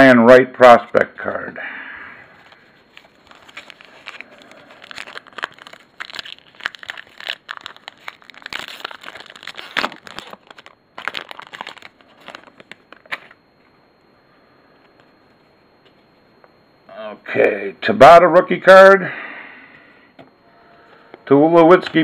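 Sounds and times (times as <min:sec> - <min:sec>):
foil wrapper crinkling and tearing: 0:02.4 - 0:13.4.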